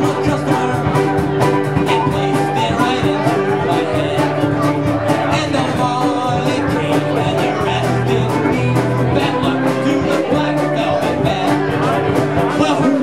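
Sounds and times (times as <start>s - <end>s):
fiddle: 0.0s - 13.0s
strummed acoustic guitars: 0.0s - 13.0s
flute: 0.2s - 4.6s.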